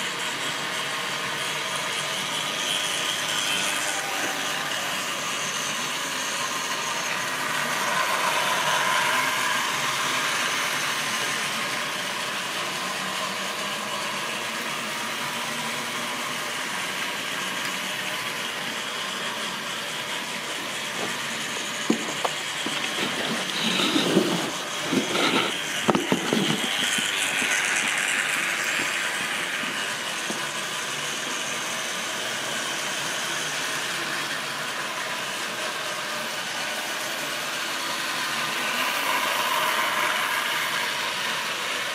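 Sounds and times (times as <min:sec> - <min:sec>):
model train rattling and rumbling: 0:06.7 - 0:41.9
sharp clicks and knocks: 0:20.9 - 0:28.0.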